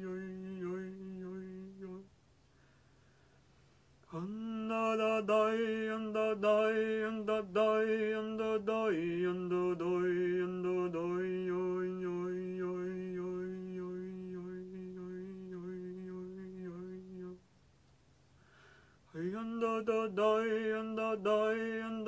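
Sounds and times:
low voice chanting a tone: 0.0 - 2.1, 5.6 - 17.4.

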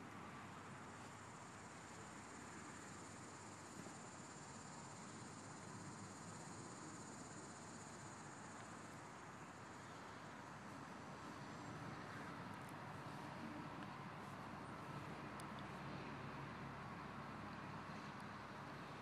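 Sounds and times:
high-pitched insect trill: 1.2 - 10.0.

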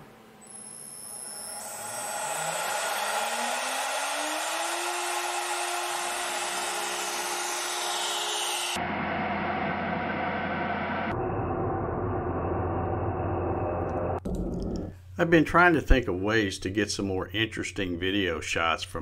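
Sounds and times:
router spindle whine: 0.4 - 8.8.

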